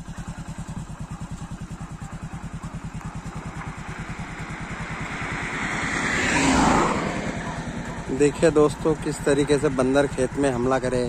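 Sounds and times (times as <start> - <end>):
motorcycle engine cruising: 0.0 - 11.0
rush of noise: 3.8 - 8.2.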